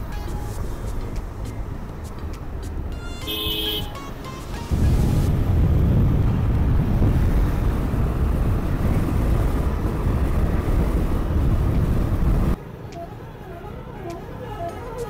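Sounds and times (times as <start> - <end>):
motorcycle road noise: 0.0 - 15.0
wind on microphone: 4.7 - 12.6.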